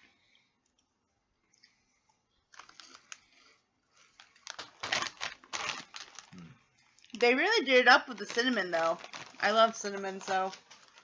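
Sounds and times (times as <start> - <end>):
plastic snack bag crinkling: 2.5 - 11.0.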